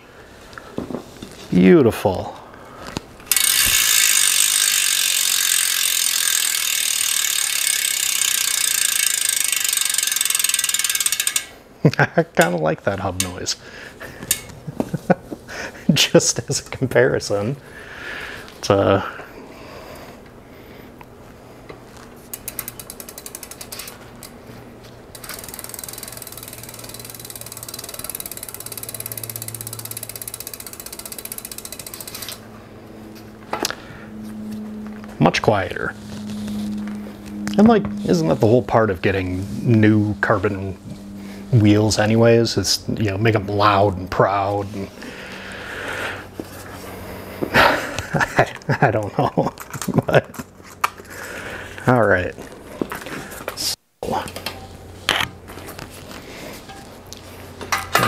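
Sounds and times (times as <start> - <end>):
bicycle freehub ratcheting: 3.2 - 11.6, 14.2 - 14.5, 22.3 - 24.4, 25.1 - 32.5.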